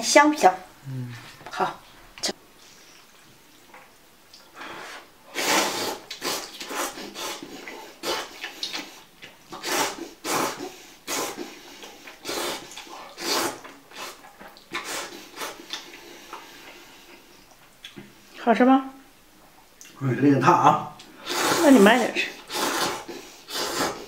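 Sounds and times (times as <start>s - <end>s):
person slurping noodles: 5.3s - 16.6s, 21.2s - 24.0s.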